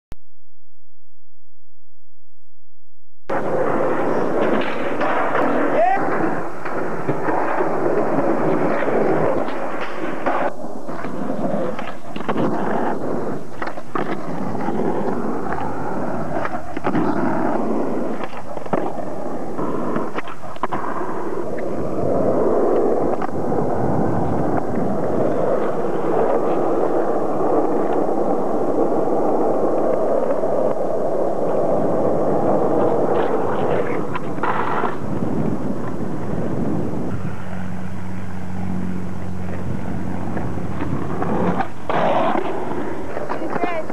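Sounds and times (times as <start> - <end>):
skateboard clacking on ground: 3.3 - 28.1, 32.6 - 36.4, 39.1 - 43.9
skateboard wheels rolling on asphalt: 3.3 - 43.9.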